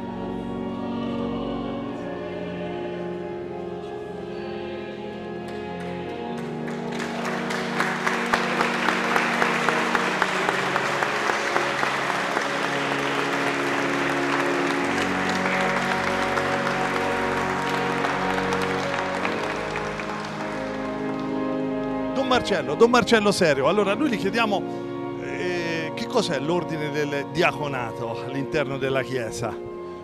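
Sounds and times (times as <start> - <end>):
music playing: 0.0 - 30.0
congregation applauding: 5.5 - 24.5.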